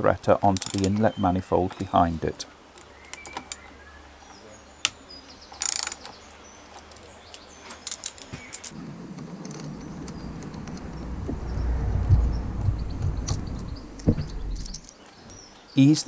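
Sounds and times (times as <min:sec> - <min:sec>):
low outdoor rumble: 0:08.7 - 0:14.9.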